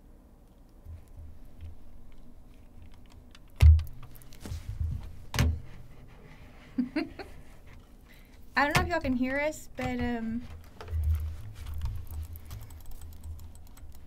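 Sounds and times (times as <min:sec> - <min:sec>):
rustling: 0:00.9 - 0:06.8, 0:10.2 - 0:13.4.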